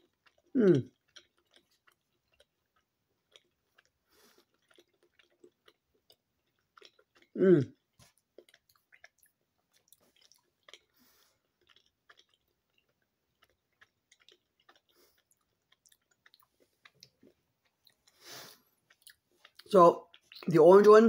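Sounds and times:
chewing mouth clicks: 0.0s - 20.5s.

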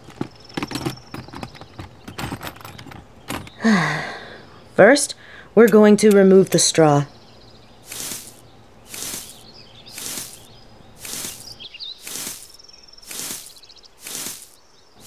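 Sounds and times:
faint bird chirps: 7.0s - 15.0s
dry straw rustling and crackling: 7.8s - 14.6s
insect trill: 7.8s - 15.0s.

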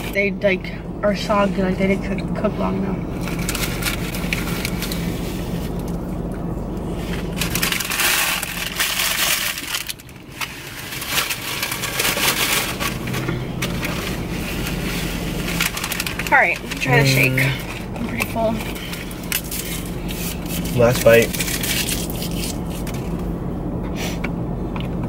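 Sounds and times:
steady low hum: 0.0s - 25.0s
paper wrapper crackling rustle: 3.2s - 5.9s, 7.0s - 23.2s.

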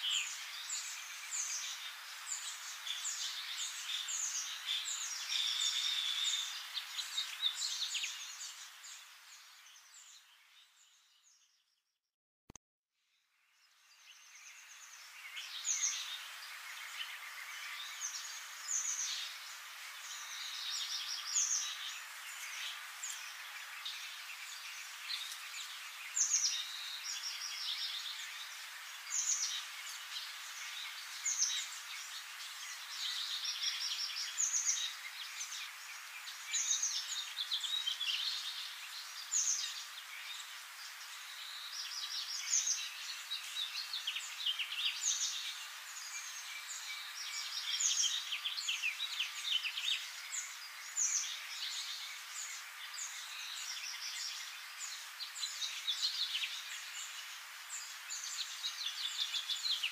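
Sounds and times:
steady background hiss: 0.0s - 11.4s, 13.4s - 59.9s
small birds chirping: 0.0s - 12.0s, 13.1s - 59.9s.

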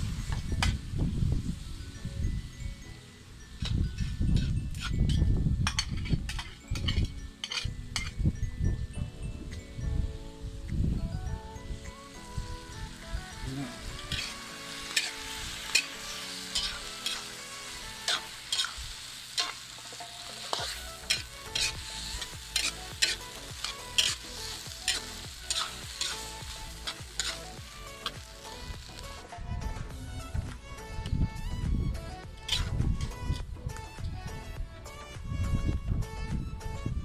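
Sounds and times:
frying sizzle: 0.0s - 7.6s, 11.8s - 29.2s, 32.4s - 33.2s
spatula clinking and scraping wok: 3.5s - 8.3s, 13.7s - 29.2s, 32.4s - 33.2s.

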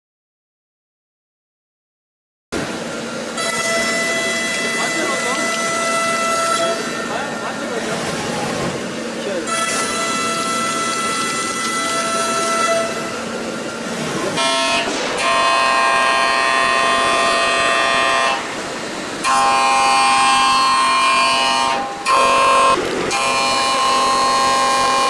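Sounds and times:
milling machine cutting whine: 2.6s - 25.0s.

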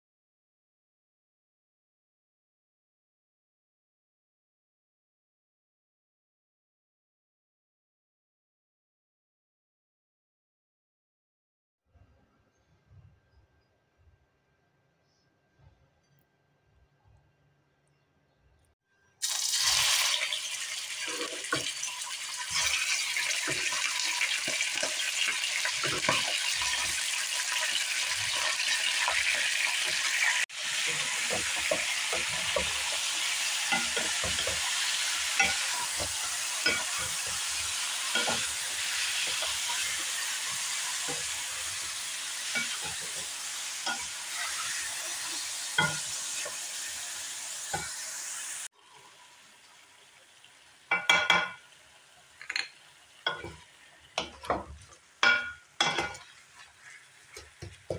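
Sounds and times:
chicken sizzling in hot oil: 19.2s - 57.9s
spatula scraping and knocking pan: 21.0s - 46.6s, 53.3s - 57.9s.

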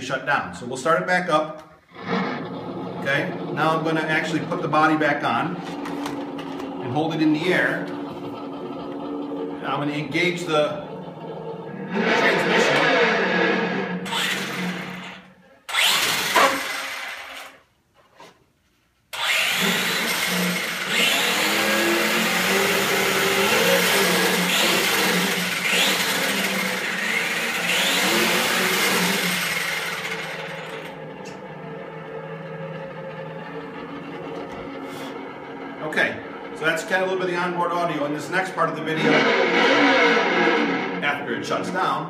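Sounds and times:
simulated engine sound: 1.0s - 17.5s, 19.2s - 42.0s
electric drivetrain whirring: 1.7s - 17.7s, 19.1s - 42.0s.

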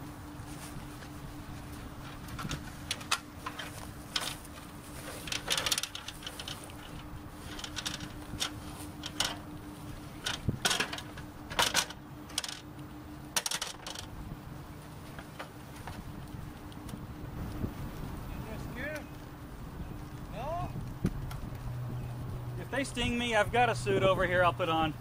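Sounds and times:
faint steady hum: 0.0s - 25.0s
gear being handled: 2.0s - 9.4s.

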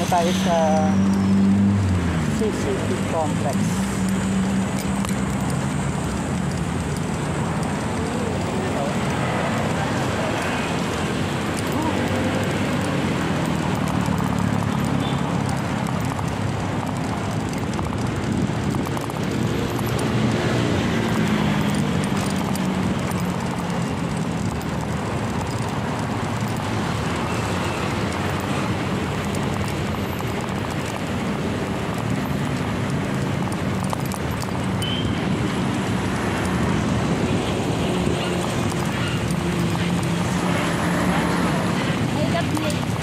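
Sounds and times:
bicycle tyre road noise: 0.0s - 43.0s
wind buffeting microphone: 14.5s - 43.0s.

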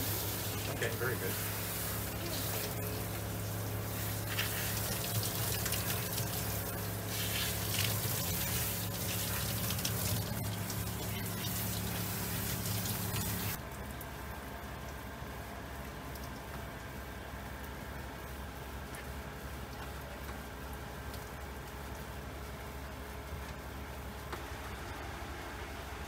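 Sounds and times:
shower sprayer spraying water: 0.0s - 13.6s
water splashing: 0.0s - 13.6s
steady low hum: 0.0s - 26.0s.

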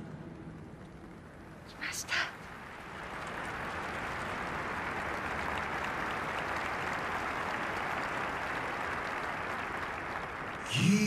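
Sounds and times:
stadium crowd applauding: 2.5s - 11.0s.

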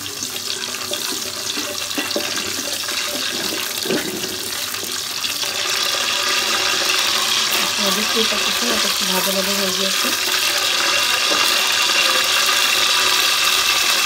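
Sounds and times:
spices sizzling in hot oil: 0.0s - 14.0s
wooden spatula stirring: 0.9s - 4.6s.

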